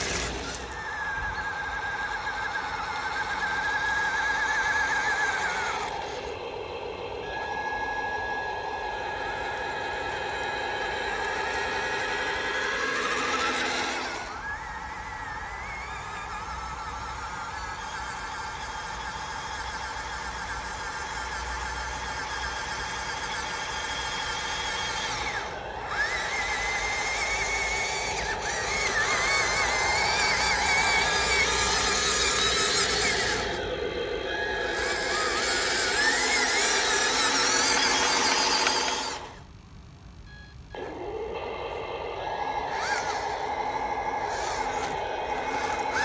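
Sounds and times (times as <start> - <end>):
simulated diesel engine from speaker: 0.0 - 39.4, 40.3 - 46.0
electric motor whine: 0.0 - 39.5, 40.7 - 46.0.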